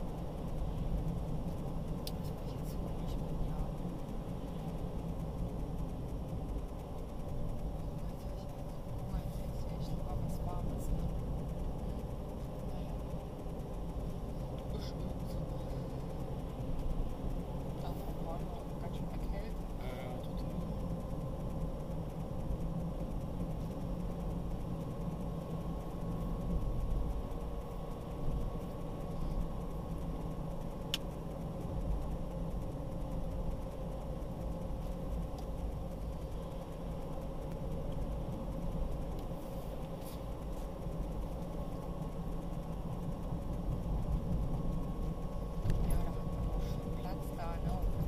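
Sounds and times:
car engine and road rumble: 0:00.0 - 0:48.0
faint hum: 0:00.0 - 0:48.0.

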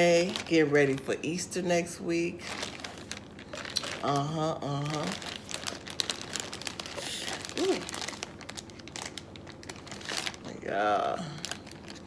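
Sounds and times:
plastic bag crinkling: 0:00.0 - 0:12.0
person humming: 0:07.0 - 0:07.9.

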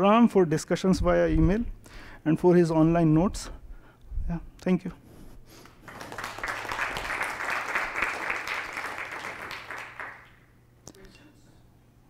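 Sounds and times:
audience applauding: 0:05.6 - 0:10.5.

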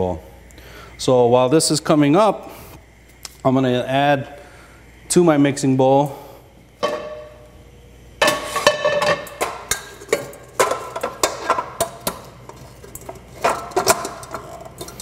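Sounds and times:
metal bowl and pans clanking: 0:06.8 - 0:07.4, 0:08.2 - 0:15.0.

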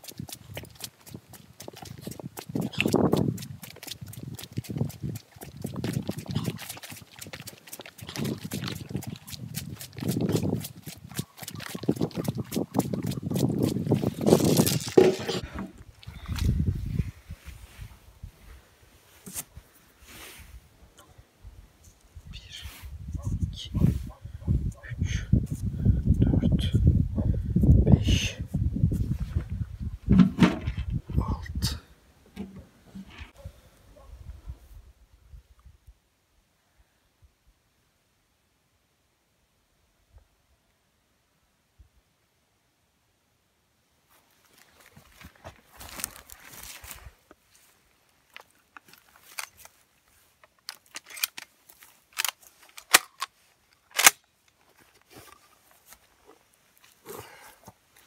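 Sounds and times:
wind buffeting microphone: 0:00.1 - 0:18.4, 0:22.2 - 0:31.8
brief rustle: 0:48.3 - 0:56.4.

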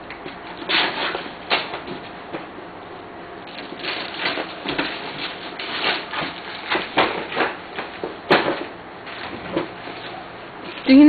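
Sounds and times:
wrapping paper tearing and crumpling: 0:03.6 - 0:07.6.

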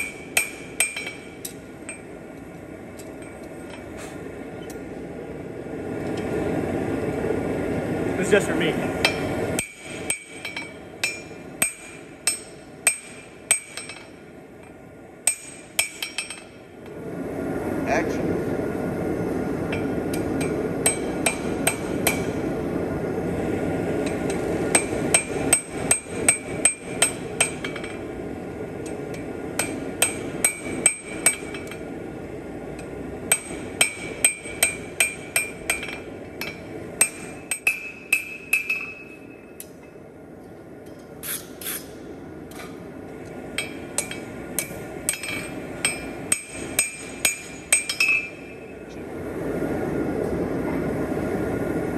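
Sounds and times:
hammer striking steel on anvil: 0:00.0 - 0:02.1, 0:09.0 - 0:16.6, 0:19.7 - 0:22.4, 0:24.0 - 0:28.0, 0:28.8 - 0:31.8, 0:32.8 - 0:40.0, 0:43.5 - 0:48.8
steady rushing noise: 0:00.0 - 0:40.3, 0:41.8 - 0:51.9.

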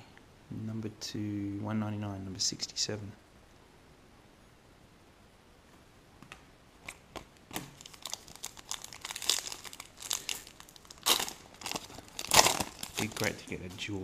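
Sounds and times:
foil wrapper tearing and crinkling: 0:07.6 - 0:13.6.

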